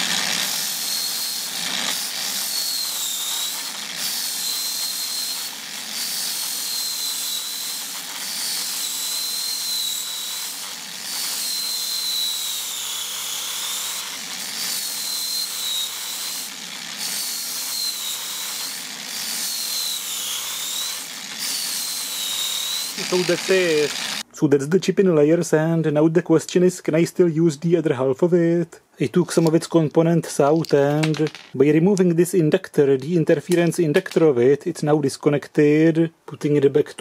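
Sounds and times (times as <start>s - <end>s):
angle grinder whine: 0.0s - 24.2s.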